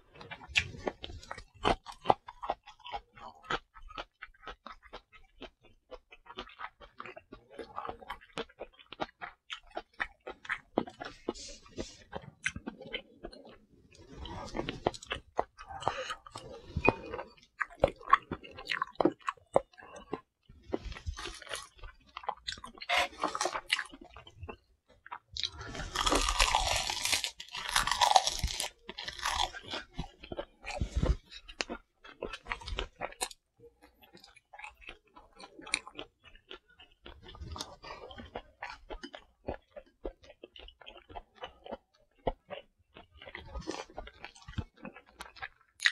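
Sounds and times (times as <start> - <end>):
wet chewing clicks and smacks: 0.3 - 45.9
crisp crunching of dried seaweed: 25.4 - 31.8.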